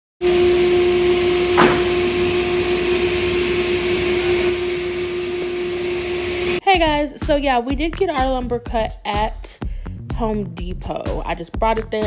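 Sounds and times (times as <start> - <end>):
woodworking saw humming and hissing: 0.2 - 6.6
short knock: 1.5 - 2.1.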